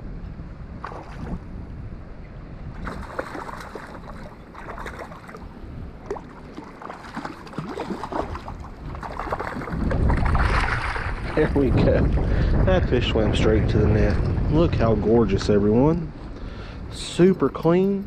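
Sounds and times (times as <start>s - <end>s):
wind rumble on microphone: 0.0s - 18.0s
water splashing: 0.8s - 1.5s, 2.8s - 11.8s.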